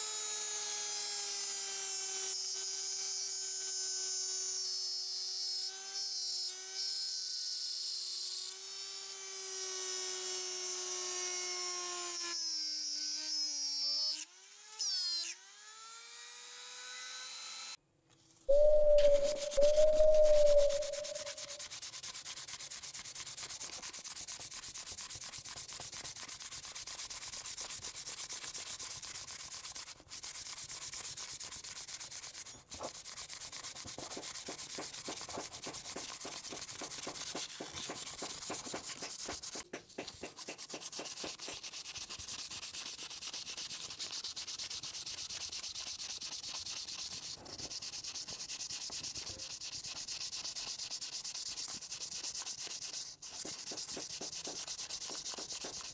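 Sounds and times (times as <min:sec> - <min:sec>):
sandpaper rubbing on wood: 0:19.1 - 0:55.9.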